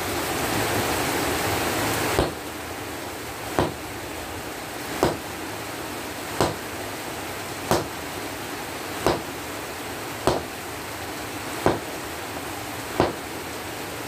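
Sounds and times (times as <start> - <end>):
steady hiss: 0.0 - 14.0
sledgehammer striking hot steel: 2.2 - 2.4, 3.6 - 3.8, 5.0 - 5.3, 6.4 - 6.6, 7.7 - 8.0, 9.0 - 9.3, 10.3 - 10.5, 11.6 - 12.0, 13.0 - 13.3.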